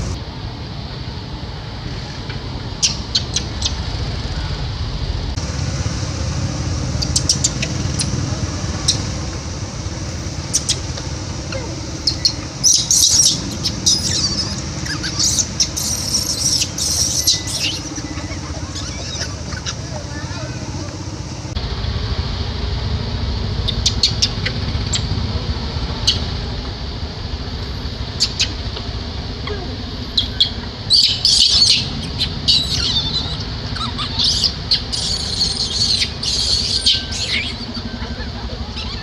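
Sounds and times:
low background rumble: 0.0 - 39.0
macaques squealing: 2.8 - 3.8, 7.0 - 9.4, 10.0 - 21.6, 28.1 - 28.7, 29.4 - 39.0.

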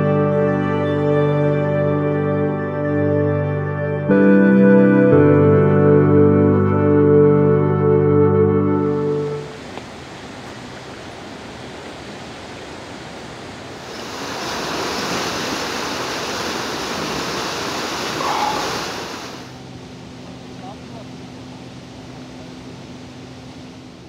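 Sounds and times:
fast river rushing: 8.9 - 19.6.

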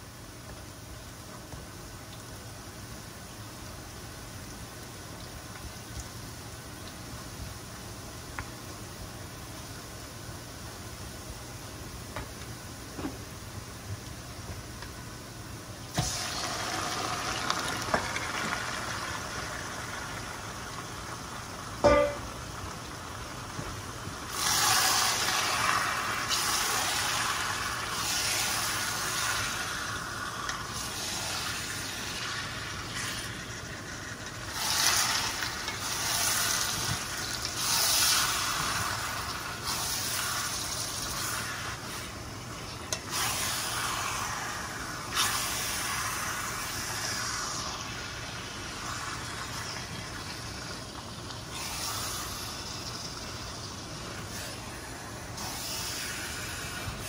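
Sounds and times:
meat sizzling in a frying pan: 15.9 - 57.0.

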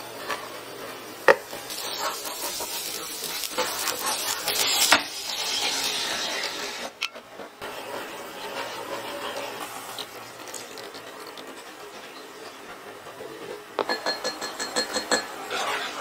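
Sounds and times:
wooden spatula scraping a pan: 0.0 - 13.7, 15.1 - 16.0
onion and garlic sizzling in oil: 0.0 - 16.0
sauce poured into hot pan: 1.5 - 6.9, 9.6 - 11.4.

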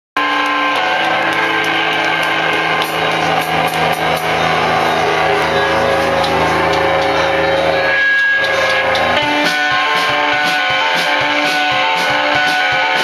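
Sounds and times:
distorted electric guitar: 0.2 - 13.0
drum and cymbal hits: 0.2 - 13.0.

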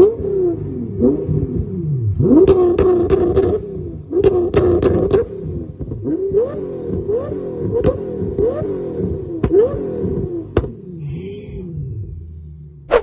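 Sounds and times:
car engine revving: 0.0 - 13.0
exhaust cracks: 1.2 - 11.2.

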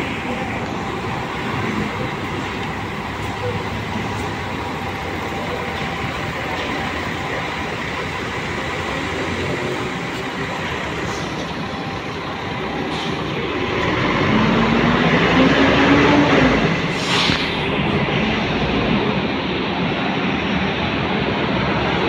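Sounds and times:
bus engine revving: 0.0 - 22.0
bus engines running: 0.0 - 22.0
short air hiss: 16.9 - 17.6.

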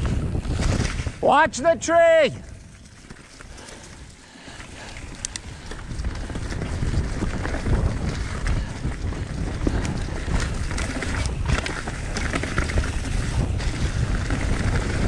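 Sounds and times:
bike rattles and clicks: 0.0 - 1.2, 2.4 - 15.0
wind buffeting microphone: 0.0 - 15.0
bike tyres crunching on leaves: 2.7 - 15.0.

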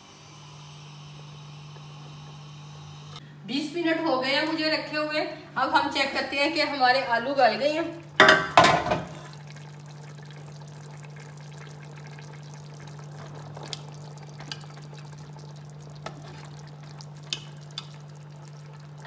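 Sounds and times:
pot simmering and bubbling: 7.9 - 19.0.

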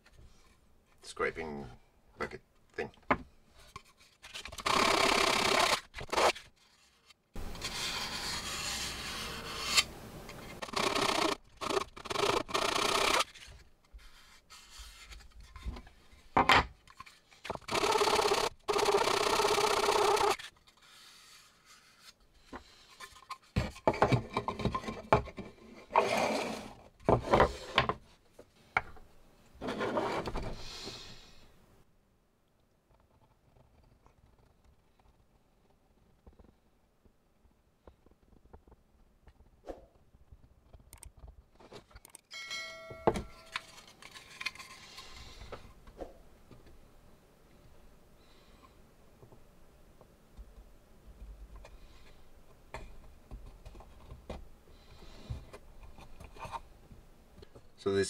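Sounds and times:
plastic rubbing on sandpaper: 4.0 - 9.9, 10.5 - 15.3
small clicks of plastic parts: 40.6 - 42.3.

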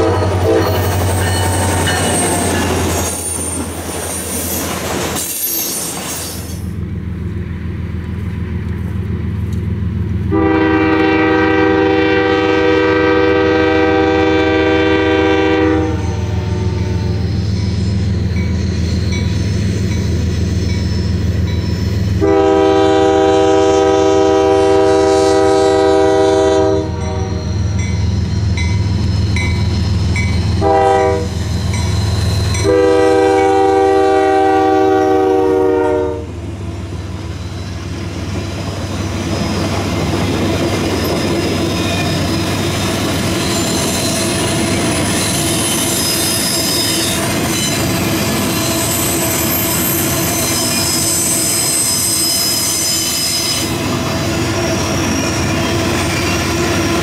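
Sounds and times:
locomotive air horn blasts: 0.0 - 0.9, 10.3 - 17.4, 22.2 - 27.8, 30.6 - 31.5, 32.5 - 36.4
railcars rolling and clattering: 0.0 - 57.0
diesel engine rumble: 6.7 - 10.4.

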